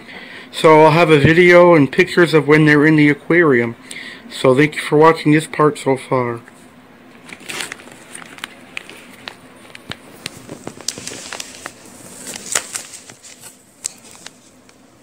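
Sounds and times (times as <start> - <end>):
plastic bag crinkling: 7.2 - 14.9.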